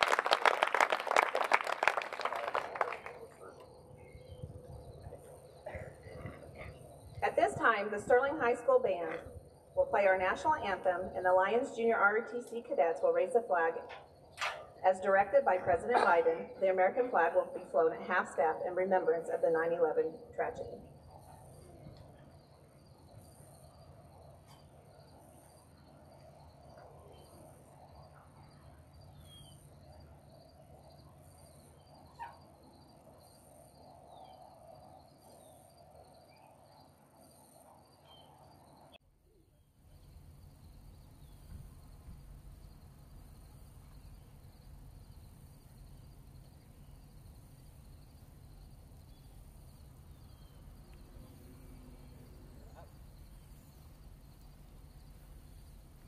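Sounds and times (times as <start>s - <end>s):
insects chirping: 0.0s - 56.0s.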